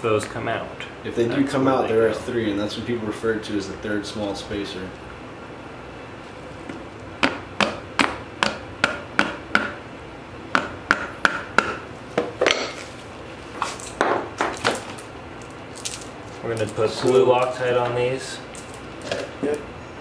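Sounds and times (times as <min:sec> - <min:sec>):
hammer knocking on metal: 0:07.2 - 0:09.8, 0:10.5 - 0:12.8.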